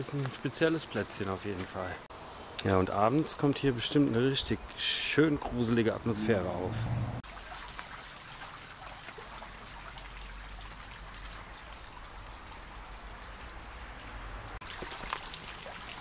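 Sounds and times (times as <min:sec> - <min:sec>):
water trickling and splashing: 0:07.2 - 0:16.0.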